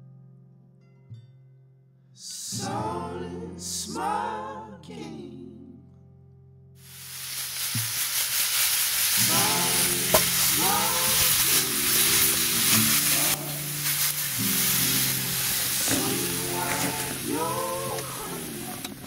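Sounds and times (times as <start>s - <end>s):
song with singing: 2.4s - 5.8s, 9.0s - 19.0s
meat sizzling in a frying pan: 6.8s - 19.0s.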